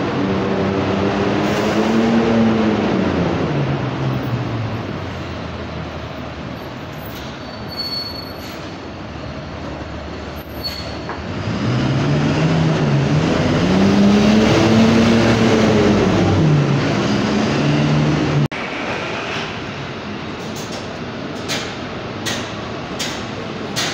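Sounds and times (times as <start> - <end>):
bus engine pulling away: 0.0 - 23.8
short high squeaks: 7.1 - 8.8, 10.4 - 11.2.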